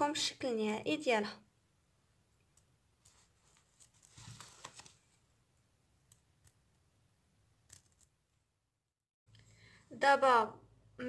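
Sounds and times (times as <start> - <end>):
fabric rustling: 3.0 - 5.2.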